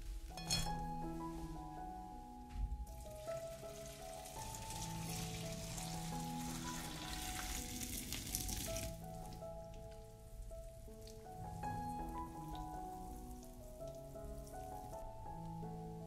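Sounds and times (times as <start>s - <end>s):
soft background music: 0.0s - 16.0s
food sizzling in a pan: 3.0s - 9.1s.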